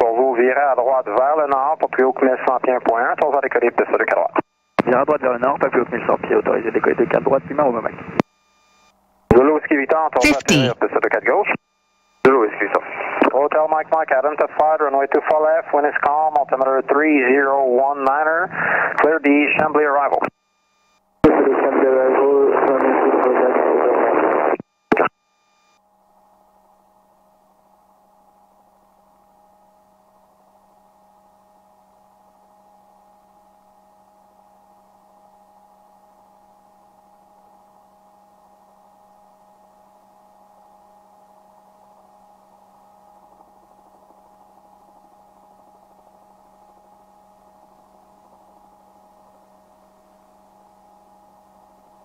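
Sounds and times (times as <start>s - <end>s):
faint intercom hum: 0.0s - 8.2s, 9.3s - 11.6s, 12.2s - 20.3s, 21.2s - 25.1s
radio transmission: 0.0s - 8.2s, 9.3s - 11.6s, 12.3s - 20.3s, 21.2s - 25.1s.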